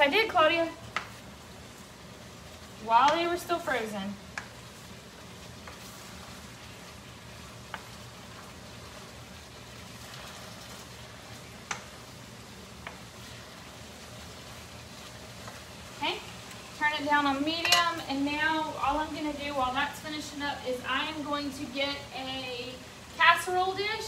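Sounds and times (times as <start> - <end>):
food sizzling in a skillet: 0.0 - 24.0
spoon stirring food: 4.2 - 15.8
spoon tapping a pan: 17.6 - 18.0.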